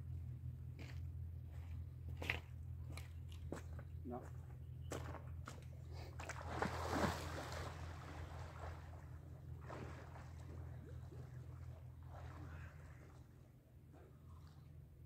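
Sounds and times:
lake water splashing: 0:05.4 - 0:15.0.

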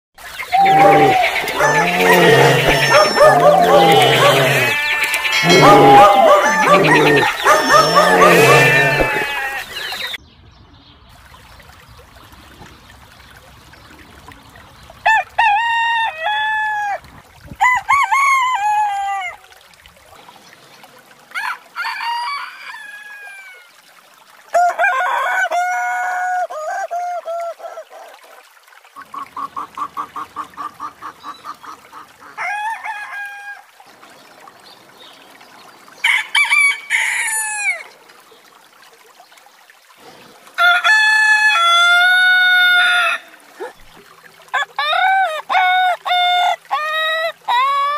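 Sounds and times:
rapid short calls: 0:00.5 - 0:10.2
roosters crowing: 0:00.5 - 0:10.2.

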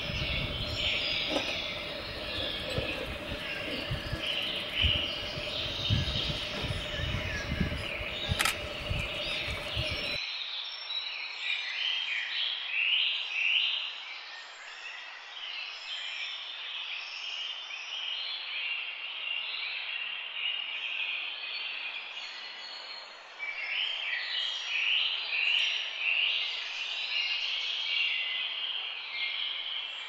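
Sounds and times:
birds chirping and calling: 0:00.0 - 0:10.2
low rumbling noise: 0:00.0 - 0:10.2.

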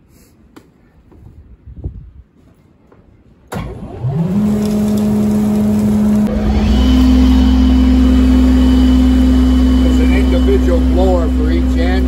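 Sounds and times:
sawmill engine running: 0:03.6 - 0:12.0
deep hum: 0:04.6 - 0:12.0.

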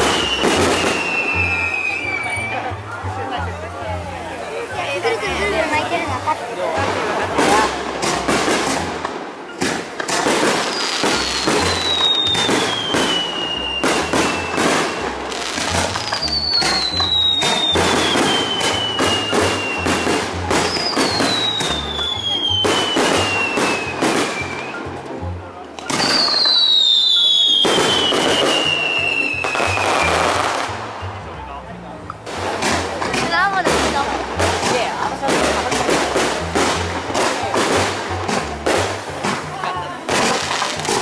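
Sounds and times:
fireworks falling whistles: 0:00.0 - 0:02.6, 0:09.5 - 0:24.9, 0:25.8 - 0:30.6
fireworks bursting and crackling: 0:00.0 - 0:31.2, 0:32.0 - 0:41.0.

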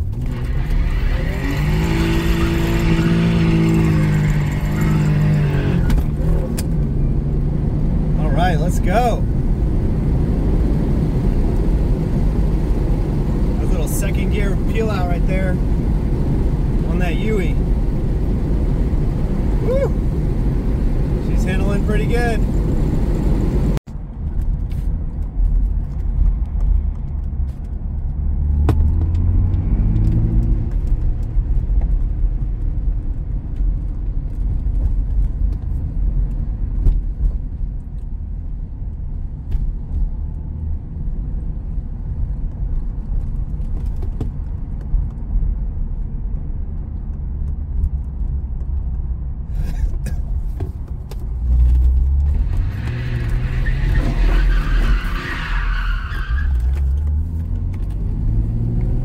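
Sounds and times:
car engine accelerating: 0:00.0 - 0:23.8, 0:27.2 - 0:32.4, 0:51.3 - 0:59.0
road rumble: 0:00.0 - 0:59.0.

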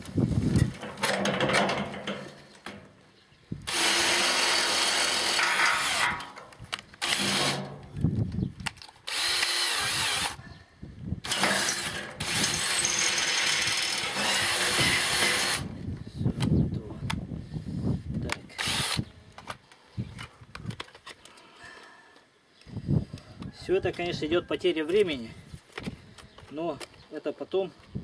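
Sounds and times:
cordless drill drilling: 0:03.7 - 0:06.2, 0:07.0 - 0:07.6, 0:09.1 - 0:10.4, 0:11.2 - 0:15.7, 0:18.6 - 0:19.0.

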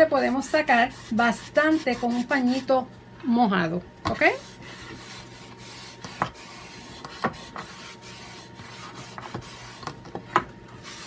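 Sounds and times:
cloth scrubbing wooden board: 0:00.0 - 0:02.7, 0:04.2 - 0:09.8, 0:10.8 - 0:11.0.

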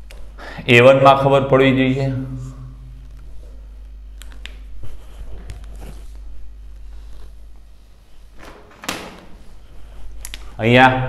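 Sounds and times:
steady low hum: 0:00.0 - 0:11.0
rustling movement: 0:04.6 - 0:10.6.

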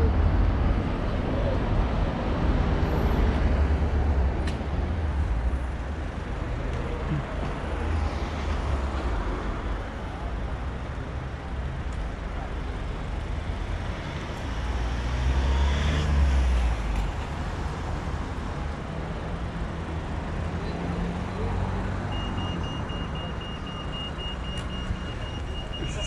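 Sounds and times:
traffic rumble: 0:00.0 - 0:26.0
crossing signal beeping rapidly: 0:22.1 - 0:26.0.

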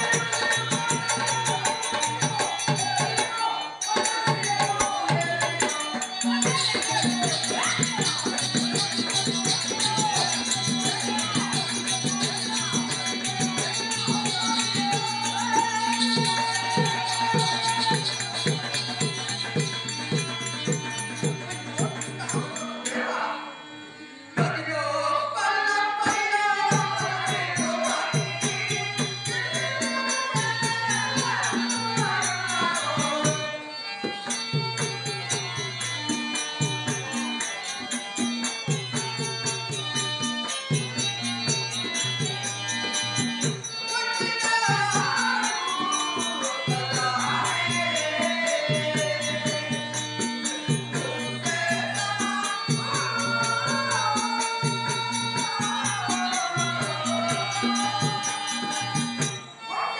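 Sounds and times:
person singing: 0:00.0 - 0:19.7.

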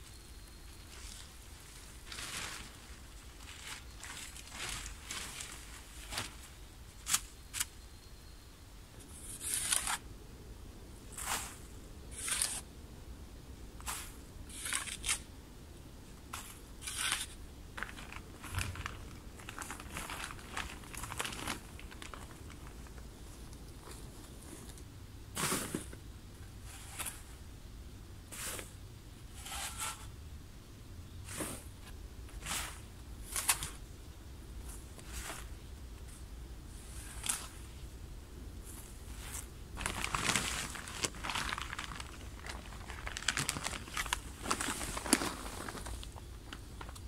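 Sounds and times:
plastic sheeting crinkling: 0:00.9 - 0:07.2, 0:16.3 - 0:24.8, 0:38.7 - 0:47.0.

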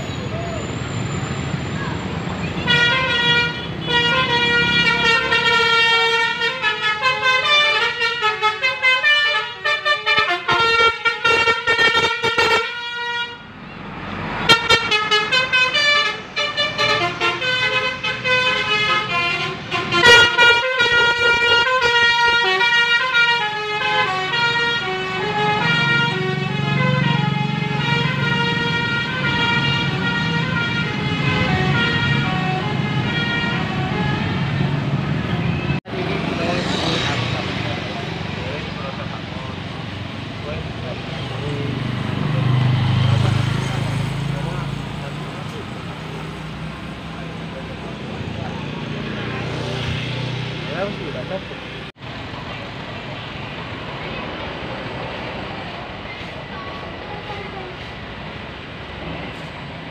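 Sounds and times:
musical bus air horn: 0:02.6 - 0:13.5, 0:14.5 - 0:35.6
bus engine running: 0:50.2 - 0:59.9.

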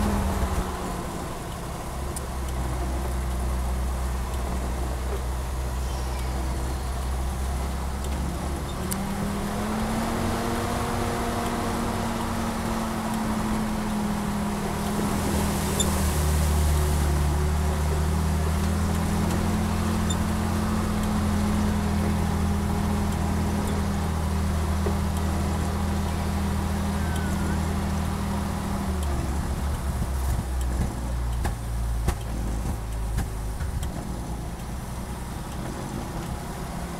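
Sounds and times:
truck engine running: 0:00.0 - 0:36.9.

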